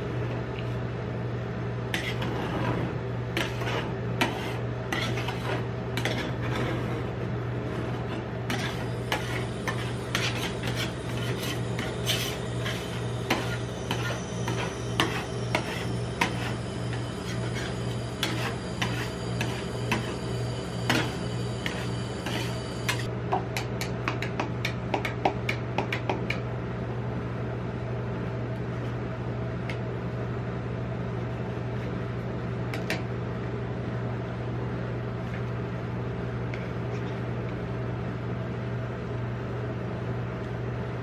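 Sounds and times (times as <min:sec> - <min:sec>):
steady low hum: 0:00.0 - 0:41.0
spatula scraping and tapping on metal: 0:02.0 - 0:02.3, 0:03.4 - 0:06.6, 0:08.0 - 0:16.6, 0:17.2 - 0:20.2.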